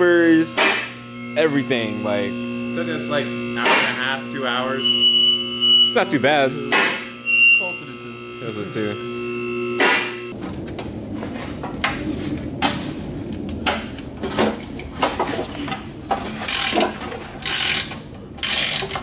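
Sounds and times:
hand tools clicking and ratcheting: 15.7 - 19.0.

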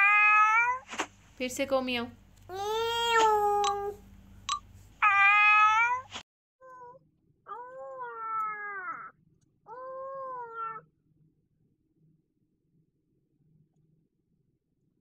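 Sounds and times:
cat meowing: 0.0 - 0.8, 5.0 - 9.1, 9.7 - 10.8.

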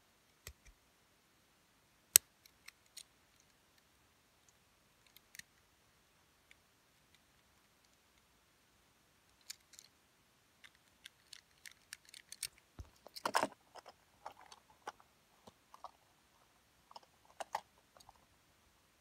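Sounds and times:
toy car and box handling clicks: 9.4 - 9.9, 10.6 - 15.0, 16.9 - 18.2
cardboard rustling: 12.2 - 16.1.

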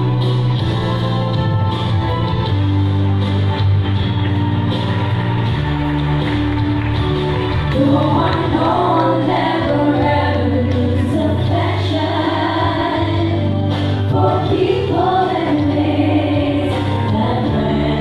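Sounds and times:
band playing slow song: 0.0 - 18.0
voices singing together: 7.8 - 18.0.

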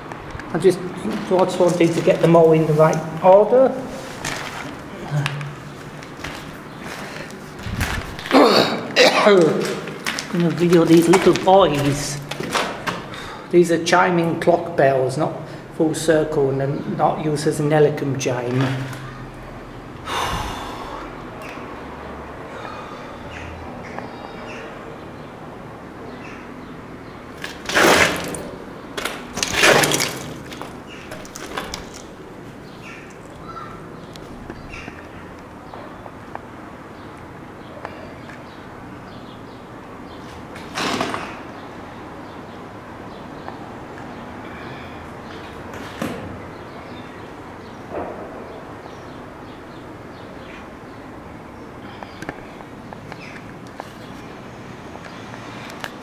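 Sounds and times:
footsteps on gritty wooden floor: 3.8 - 8.4, 9.4 - 12.6.

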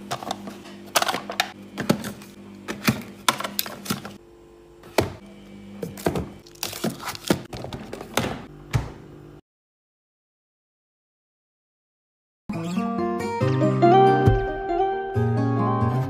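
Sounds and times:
fridge hum: 0.0 - 9.4
fridge door thump: 8.1 - 9.0.

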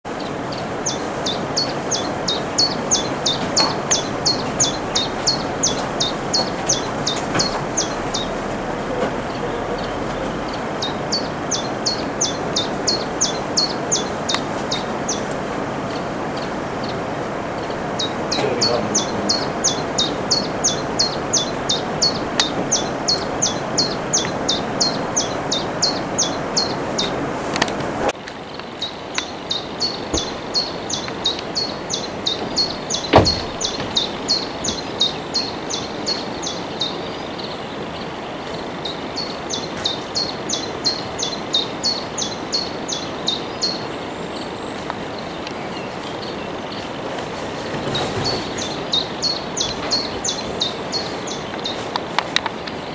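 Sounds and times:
rushing background noise: 0.1 - 52.9
bird singing high sharp notes: 1.3 - 14.4.

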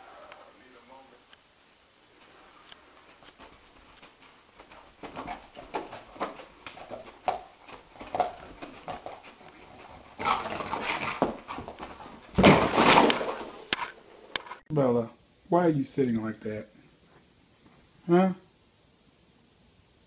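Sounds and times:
dog crashing into wall: 12.3 - 13.6.

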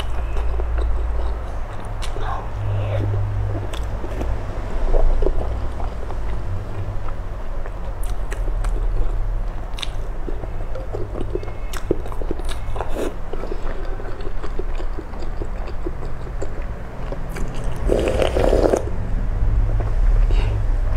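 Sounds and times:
wet chewing of soft food: 0.0 - 18.9
slurp of broth from spoon: 17.9 - 18.8.

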